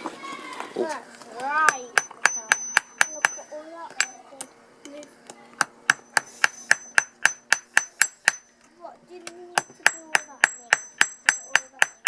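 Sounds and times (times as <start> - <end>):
hammer ringing on anvil: 1.7 - 4.3, 5.6 - 8.6, 9.6 - 12.0.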